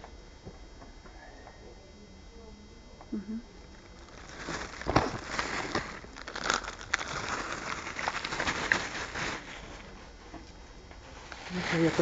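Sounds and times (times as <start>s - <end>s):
microphone handling rustle: 4.0s - 10.0s.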